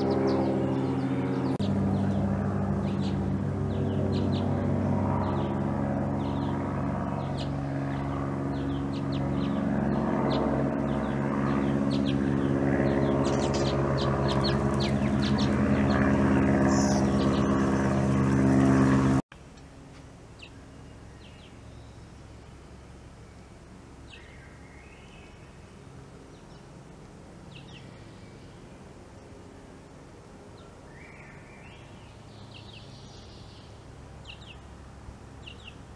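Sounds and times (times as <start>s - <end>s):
steady low drone: 0.0s - 30.9s
high bird chirps: 10.3s - 17.6s.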